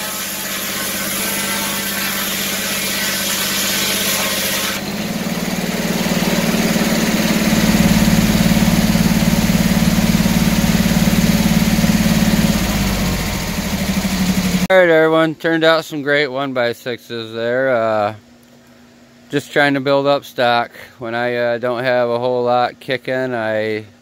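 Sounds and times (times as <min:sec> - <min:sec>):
mill engine humming: 0:00.0 - 0:14.7
saw blade cutting wood: 0:00.0 - 0:14.7.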